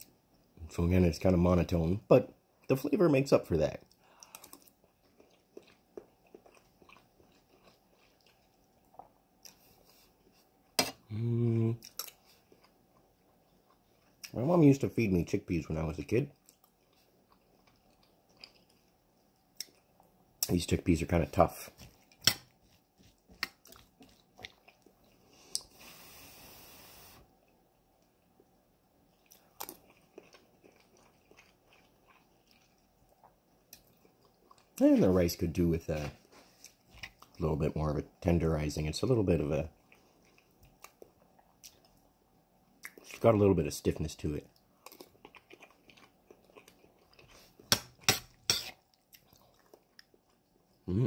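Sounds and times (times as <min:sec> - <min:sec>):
faint chewing: 0:03.8 - 0:11.1, 0:11.7 - 0:14.4, 0:16.0 - 0:26.0, 0:27.4 - 0:35.2, 0:36.0 - 0:37.5, 0:39.7 - 0:42.1, 0:42.7 - 0:43.3, 0:44.4 - 0:51.0
soft hiss: 0:25.2 - 0:27.3.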